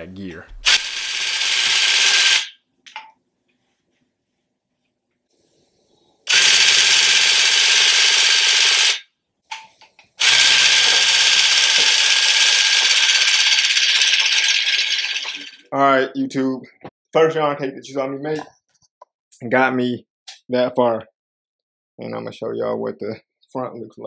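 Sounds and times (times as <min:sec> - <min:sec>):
electric tufting gun running: 0:00.5 - 0:02.5, 0:06.3 - 0:09.0, 0:10.2 - 0:15.6.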